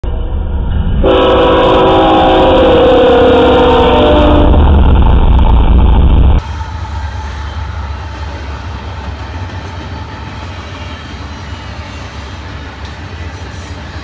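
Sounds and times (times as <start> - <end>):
rumble of train wheels: 0.0 - 14.0
locomotive air horn chord: 1.0 - 4.7.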